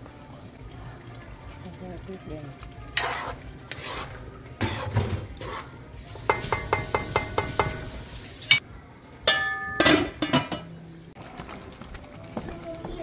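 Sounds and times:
utensil and pot clatter: 0:03.0 - 0:08.6, 0:09.2 - 0:10.8
metal spoon clinking in a pot: 0:09.2 - 0:10.8
ringing metal clank: 0:09.3 - 0:10.6.

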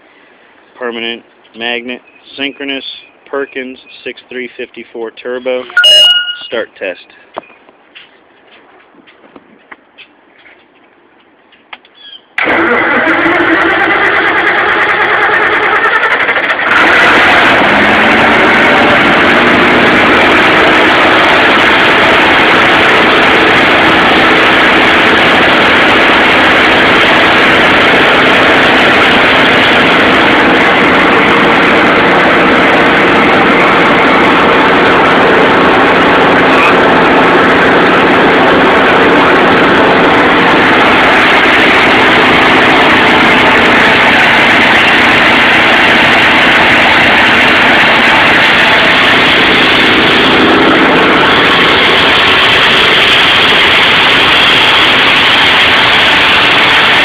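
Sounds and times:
diesel engine running: 0:12.4 - 0:57.0
starter cranking diesel engine: 0:12.4 - 0:57.0.

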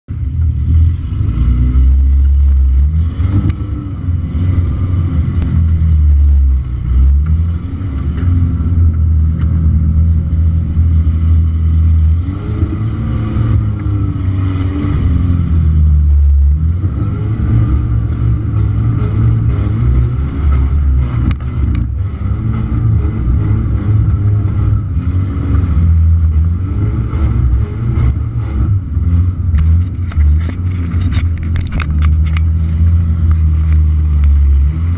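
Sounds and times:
engine running at low revs: 0:00.0 - 0:34.9
body and suspension rattles: 0:29.3 - 0:34.9.

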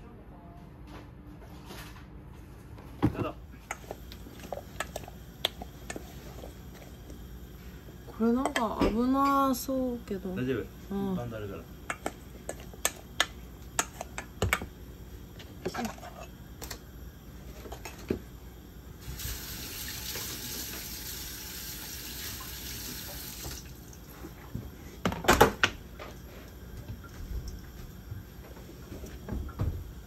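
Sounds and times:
kitchen tap running: 0:19.0 - 0:24.2.

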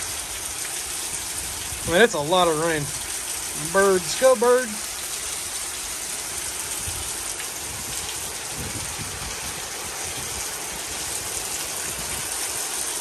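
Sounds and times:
heavy rain: 0:00.0 - 0:13.0
water pouring off roof splashing: 0:00.0 - 0:13.0
wind buffeting microphone: 0:06.7 - 0:12.5.

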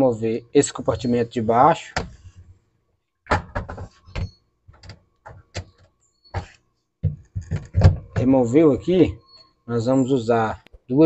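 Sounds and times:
plastic drawer knocking and clicking: 0:07.0 - 0:08.3.

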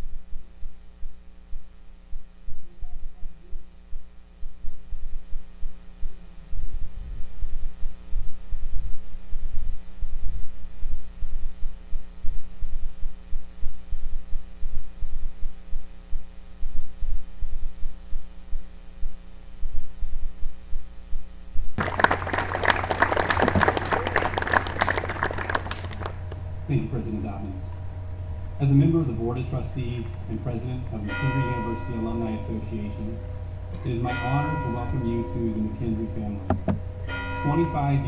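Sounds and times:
electrical hum: 0:00.0 - 0:38.0
low rumbling pulses: 0:00.0 - 0:38.0
audience applause: 0:21.8 - 0:26.4.

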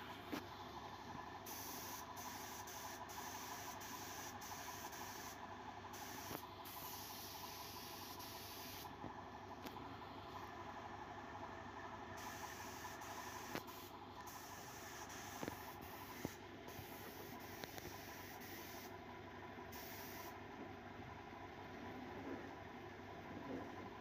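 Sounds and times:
compressed air hiss: 0:01.5 - 0:05.4, 0:06.0 - 0:08.9, 0:12.2 - 0:18.9, 0:19.8 - 0:20.4.

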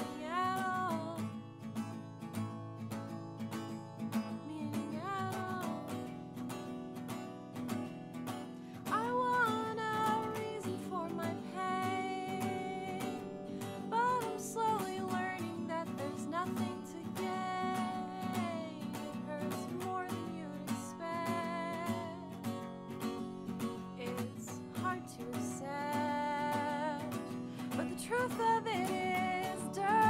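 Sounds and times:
person singing: 0:00.0 - 0:01.2, 0:04.4 - 0:06.0, 0:08.8 - 0:22.3, 0:24.0 - 0:30.0
strummed acoustic guitar: 0:00.0 - 0:30.0.

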